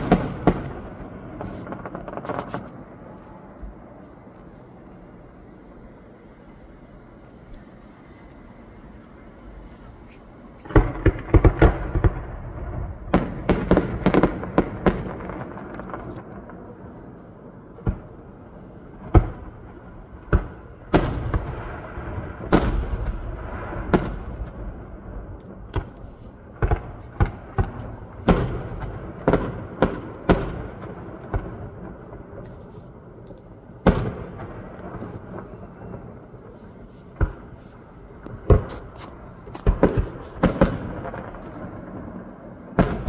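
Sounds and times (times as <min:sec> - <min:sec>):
continuous rumble: 0:00.0 - 0:43.0
firework shells bursting: 0:25.5 - 0:42.2.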